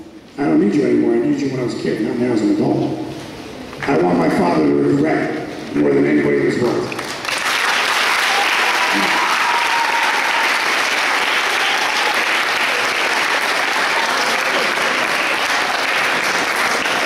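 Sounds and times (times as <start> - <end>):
audience applauding: 6.9 - 17.0.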